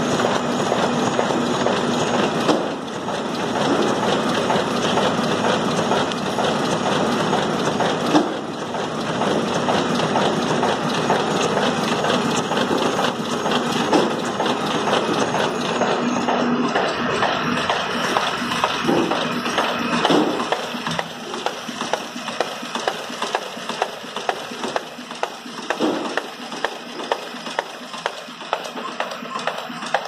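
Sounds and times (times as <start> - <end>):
machine clattering: 0.0 - 30.0.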